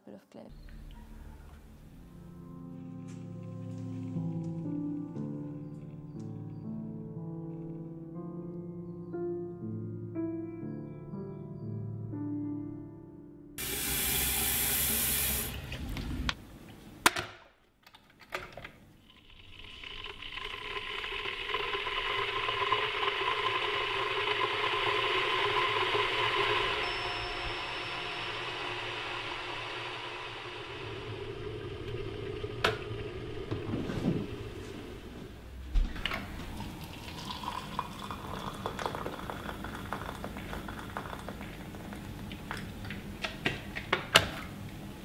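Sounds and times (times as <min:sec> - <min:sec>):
tap water running into kettle: 0:13.6 - 0:15.9, 0:19.1 - 0:34.5, 0:36.3 - 0:42.8
kettle heating hiss: 0:13.6 - 0:16.4, 0:19.4 - 0:35.5, 0:36.2 - 0:43.4.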